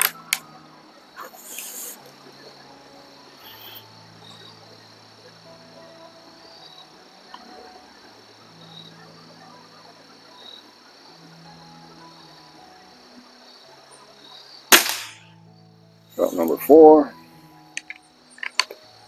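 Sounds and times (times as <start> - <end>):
crickets chirring: 0.0 - 19.0
hissing rustle: 1.2 - 2.1.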